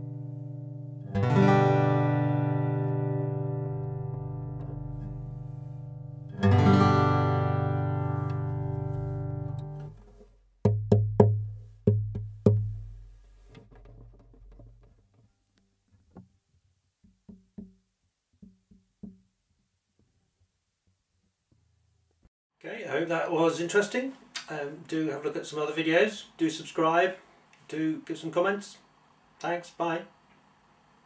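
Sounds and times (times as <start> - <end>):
strummed guitar chord: 0.0 - 9.9
faint taps: 9.5 - 15.3
knocks on guitar body: 10.6 - 15.0, 18.4 - 19.2.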